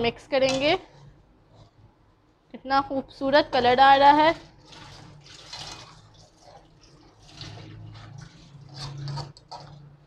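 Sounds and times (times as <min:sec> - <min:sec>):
spatula stirring wet gravy: 0:00.8 - 0:02.0, 0:04.3 - 0:10.0
spatula scraping pan: 0:04.5 - 0:10.0.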